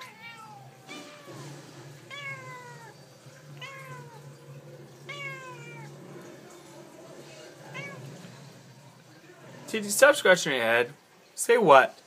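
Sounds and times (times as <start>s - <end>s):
cat meowing: 0.0s - 6.0s, 7.6s - 8.2s.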